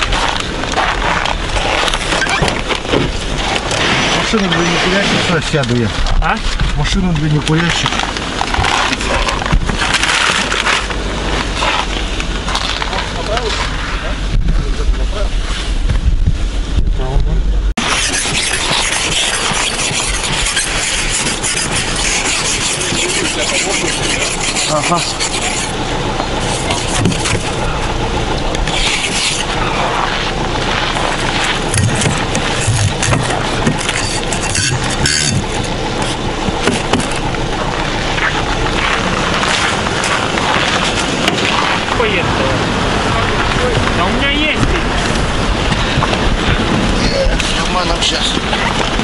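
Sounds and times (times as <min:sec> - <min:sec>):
ice scraper scraping frost: 0:00.0 - 0:05.9, 0:17.8 - 0:27.7, 0:28.6 - 0:37.3
car engines idling: 0:00.0 - 0:49.0.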